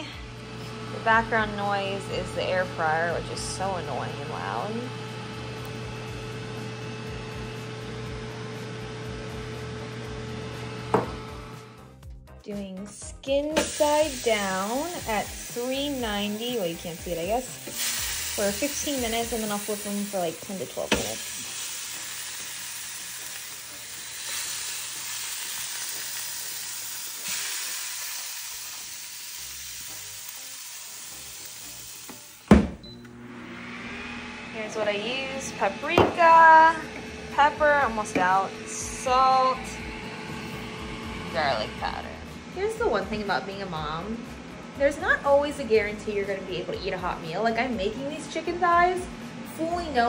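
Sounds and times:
air fryer fan whirring: 0:00.0 - 0:11.9, 0:13.3 - 0:50.0
air fryer hissing: 0:13.5 - 0:36.9
low hum: 0:32.8 - 0:44.6.

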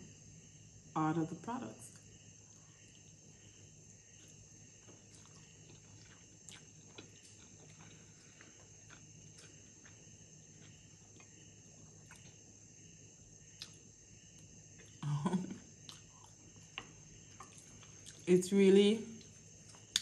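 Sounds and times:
faint chewing: 0:02.0 - 0:12.5, 0:15.8 - 0:18.3, 0:19.2 - 0:20.0.

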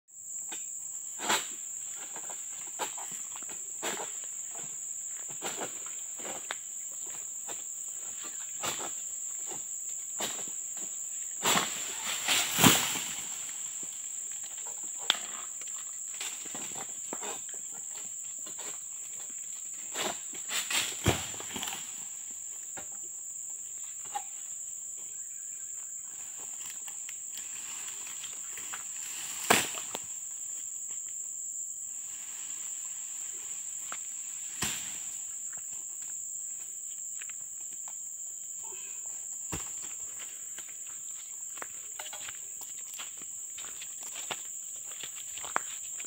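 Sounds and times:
rustles: 0:00.6 - 0:23.0, 0:26.0 - 0:31.2.

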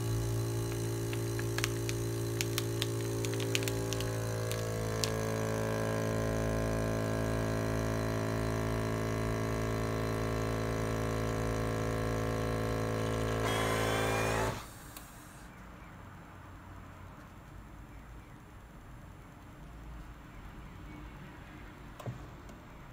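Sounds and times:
vacuum pump humming: 0:00.0 - 0:15.4.

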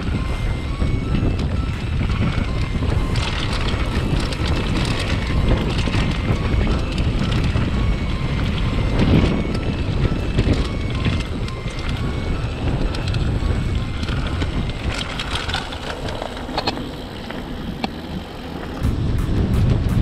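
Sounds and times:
bike tyres rolling on gravel: 0:00.0 - 0:19.2
bike and stones rattling: 0:00.0 - 0:19.8
wind buffeting microphone: 0:00.0 - 0:20.0.

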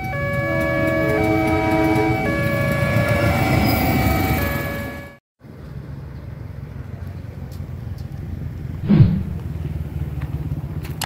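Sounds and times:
small motorcycle engines droning: 0:00.0 - 0:08.8, 0:09.4 - 0:11.0
motorcycle passing by: 0:08.3 - 0:11.0.

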